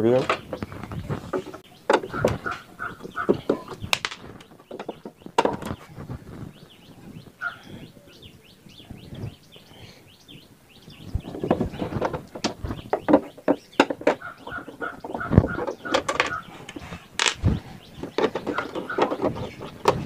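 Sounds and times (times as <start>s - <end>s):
screwdriver knocks and clatter: 3.0s - 5.8s, 12.0s - 17.4s, 18.0s - 20.0s.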